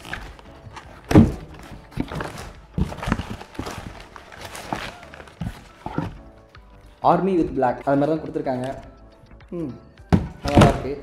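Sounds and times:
cardboard box knocks and thumps: 0:00.1 - 0:06.2, 0:10.1 - 0:11.0.

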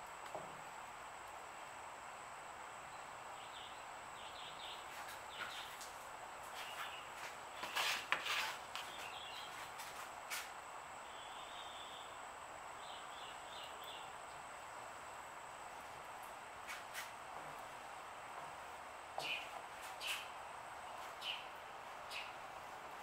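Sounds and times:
steady background hiss: 0:00.0 - 0:23.0
faint bird chirps: 0:02.9 - 0:05.8, 0:11.0 - 0:12.2, 0:19.2 - 0:22.5.

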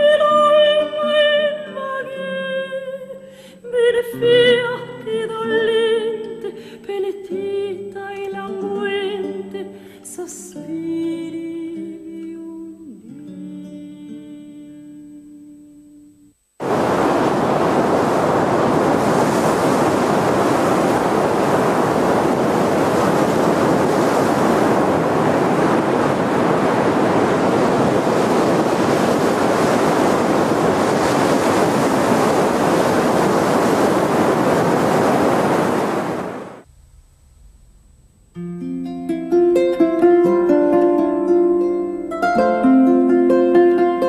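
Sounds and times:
sea waves rushing: 0:16.6 - 0:36.7.

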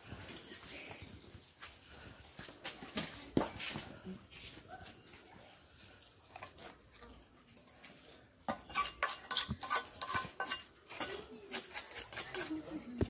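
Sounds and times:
hoe scraping on concrete: 0:06.3 - 0:13.0.

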